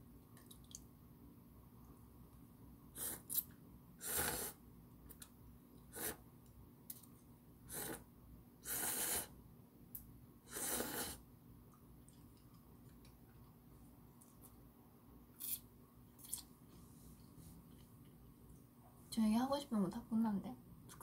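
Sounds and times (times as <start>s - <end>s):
noodles being slurped: 10.5s - 11.2s.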